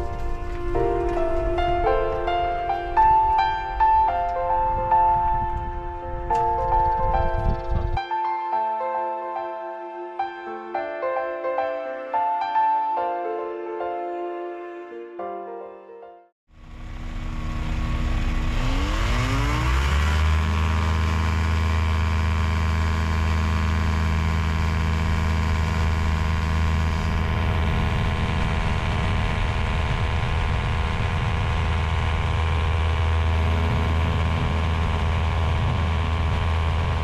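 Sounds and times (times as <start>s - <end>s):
light aircraft engine and propeller: 16.5s - 37.0s.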